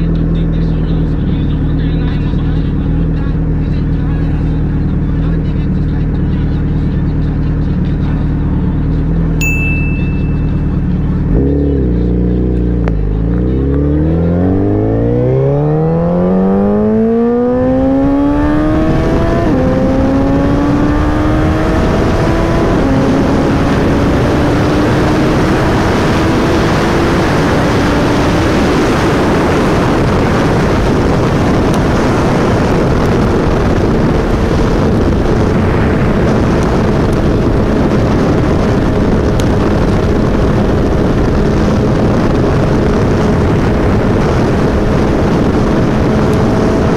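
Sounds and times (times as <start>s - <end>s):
motorcycle engine revving: 0.0s - 46.9s
rushing wind noise: 12.1s - 46.9s.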